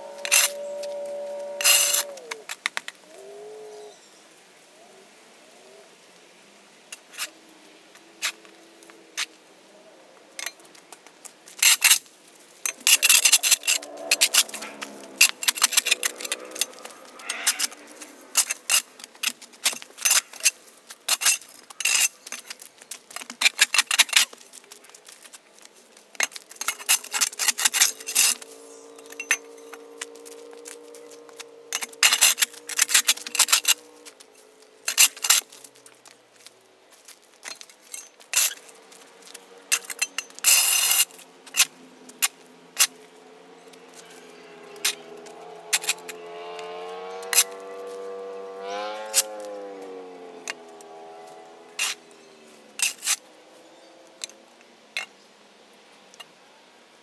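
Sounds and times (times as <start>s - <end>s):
shovel scraping concrete: 0.0s - 2.4s, 11.6s - 24.4s, 26.2s - 34.2s, 34.9s - 35.7s, 39.3s - 43.0s, 44.8s - 48.0s, 51.7s - 53.2s.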